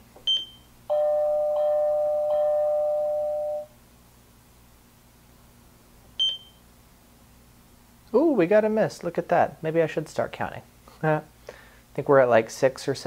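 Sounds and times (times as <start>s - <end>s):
doorbell-like alert chime: 0.3s - 3.8s
short high beep: 6.2s - 6.6s.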